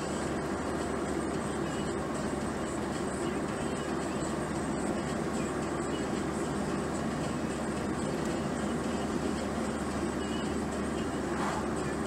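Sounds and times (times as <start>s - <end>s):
car driving road noise: 0.0s - 12.0s.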